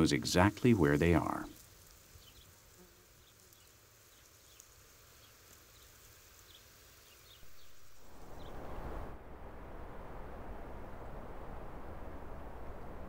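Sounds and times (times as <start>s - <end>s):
small birds chirping: 0.0s - 8.6s
steady rushing noise: 7.4s - 13.0s.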